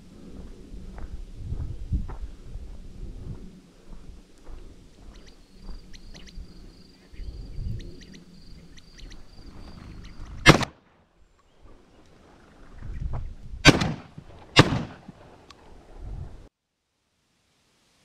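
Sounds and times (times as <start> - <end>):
quail warning calls: 5.1 - 10.5
shotgun firing: 10.4 - 10.8, 13.6 - 15.2.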